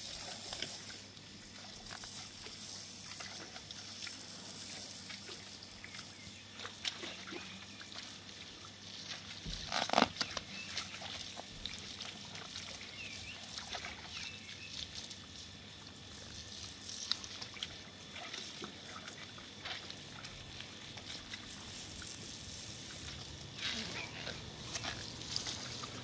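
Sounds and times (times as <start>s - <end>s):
hose water trickling and sloshing: 0.0s - 26.0s.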